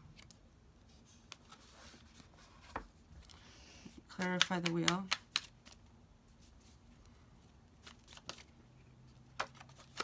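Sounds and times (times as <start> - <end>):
cards shuffled and flicked: 4.1 - 5.8, 7.8 - 8.5, 9.3 - 10.0.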